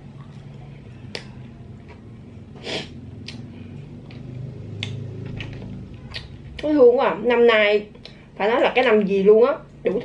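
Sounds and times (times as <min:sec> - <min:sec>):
low steady hum: 0:00.0 - 0:10.0
small mouth clicks: 0:03.2 - 0:03.5.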